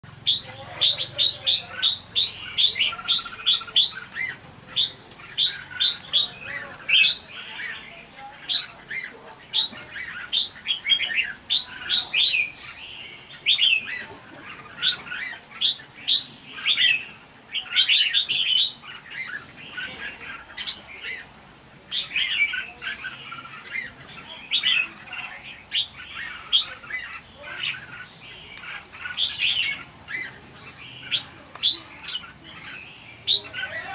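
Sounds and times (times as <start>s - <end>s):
birds chirping and squawking: 0.0s - 33.9s.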